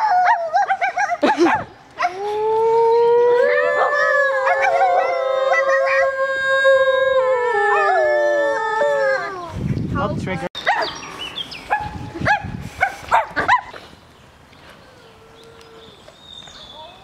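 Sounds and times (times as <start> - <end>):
people howling like wolves: 0.0 - 9.6, 14.7 - 16.2.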